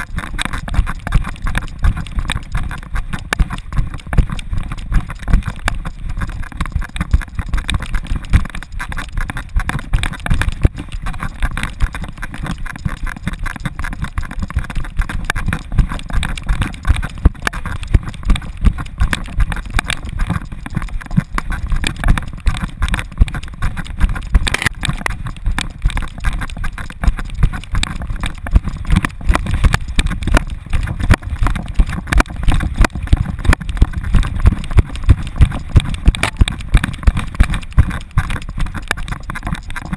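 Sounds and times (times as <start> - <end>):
dog running strides thumping: 0.1 - 39.9.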